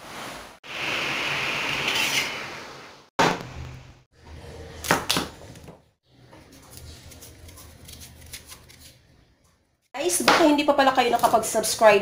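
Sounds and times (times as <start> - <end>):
knife scraping squash: 6.5 - 9.0.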